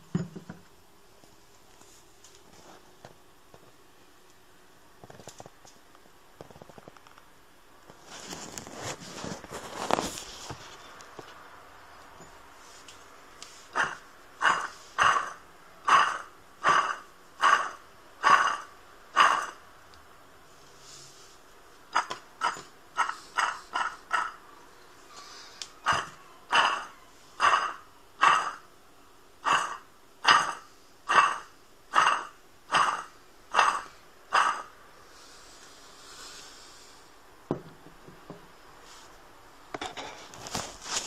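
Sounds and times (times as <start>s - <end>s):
water pump pulley spinning noise: 13.7s - 19.6s, 25.8s - 28.6s, 29.4s - 34.7s.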